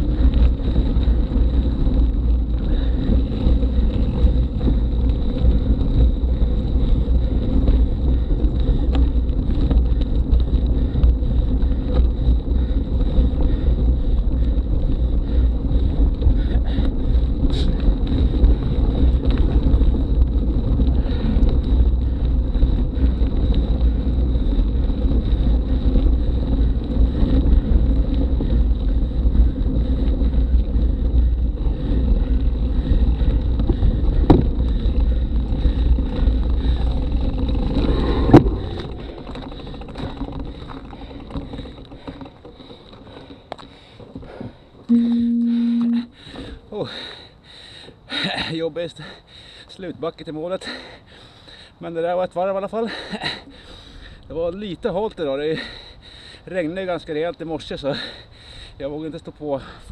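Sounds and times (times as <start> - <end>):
bike tyres crunching on gravel: 0.0 - 44.9
wind rumble on microphone: 0.0 - 46.6.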